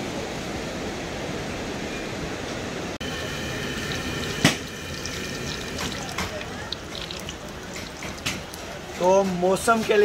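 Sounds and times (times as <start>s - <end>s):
food sizzling in hot oil: 3.0s - 8.8s.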